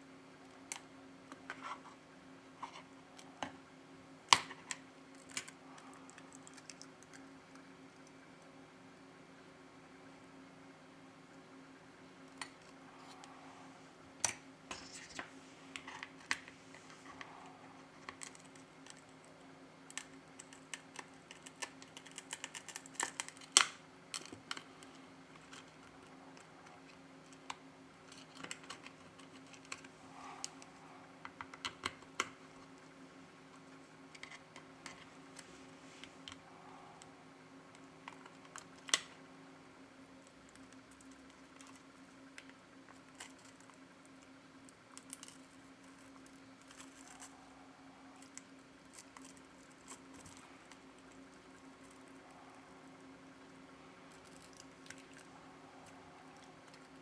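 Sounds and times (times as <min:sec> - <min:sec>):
faint steady hum: 0:00.0 - 0:57.0.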